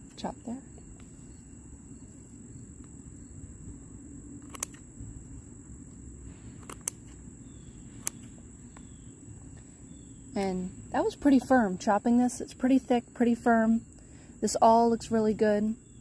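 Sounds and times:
crickets buzzing: 0.0s - 16.0s
scissors snipping: 4.4s - 4.8s.

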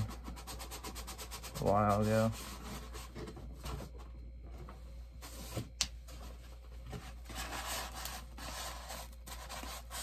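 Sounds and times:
box scraping and rubbing: 5.2s - 10.0s.

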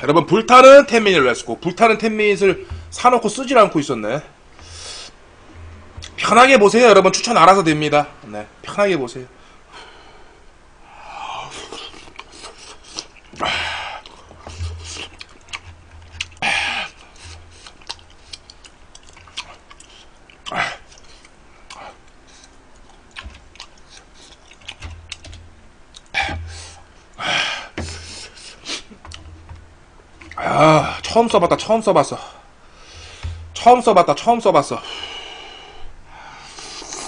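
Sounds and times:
wet chewing: 11.7s - 26.9s.

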